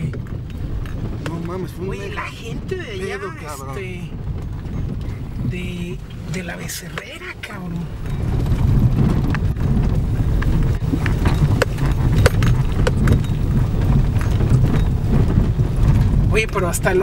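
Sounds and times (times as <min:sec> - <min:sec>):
engine and road rumble: 0:00.0 - 0:17.0
ash and stones ticking on truck: 0:08.0 - 0:16.3.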